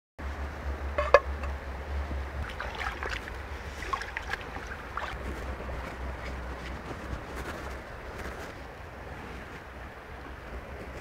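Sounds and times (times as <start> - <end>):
stream trickling over rocks: 2.3 - 5.4
slab moved through water: 2.4 - 7.6.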